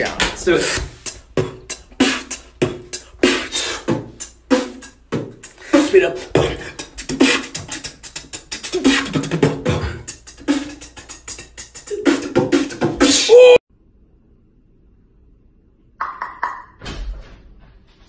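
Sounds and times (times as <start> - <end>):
person beatboxing: 0.0 - 13.6.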